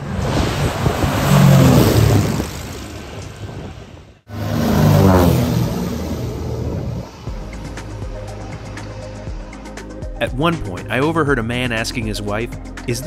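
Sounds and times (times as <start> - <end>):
propeller plane droning overhead: 0.0 - 10.2.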